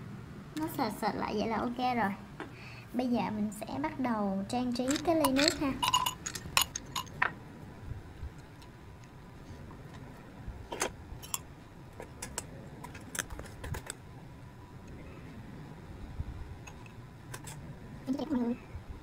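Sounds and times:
ice cubes clinking in a glass: 4.8s - 7.2s.

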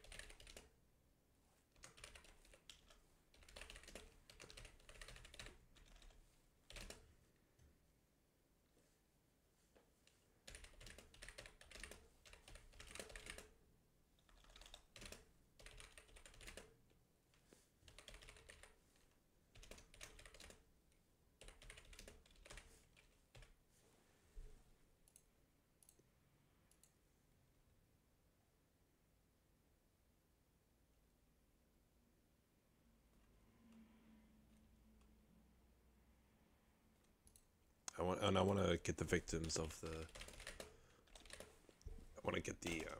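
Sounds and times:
faint keyboard typing: 0.0s - 0.8s, 1.6s - 7.8s, 9.7s - 23.7s, 25.0s - 27.1s, 37.0s - 42.9s.

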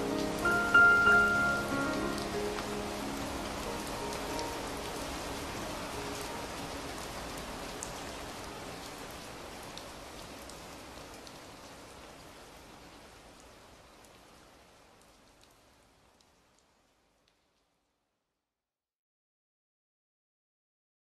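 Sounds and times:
held piano notes: 0.0s - 6.4s
rain pattering: 0.0s - 17.8s.

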